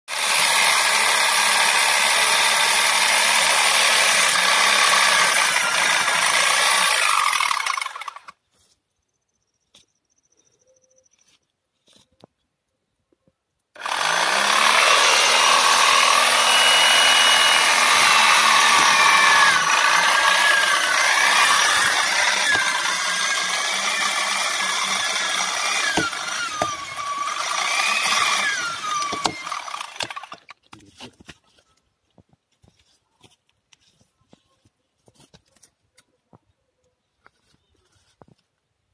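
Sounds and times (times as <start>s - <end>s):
electric chainsaw cutting wood: 0.1s - 8.4s, 13.8s - 30.6s.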